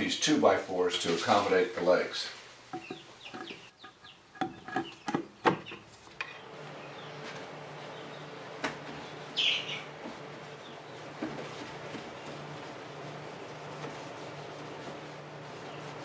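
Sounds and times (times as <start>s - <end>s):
steady low hum: 6.3s - 16.0s.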